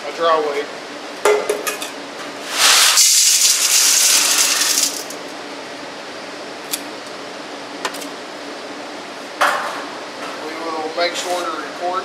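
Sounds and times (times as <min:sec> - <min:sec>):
gravel poured into metal bowl: 0:02.5 - 0:05.2
steady low hum: 0:03.4 - 0:12.0.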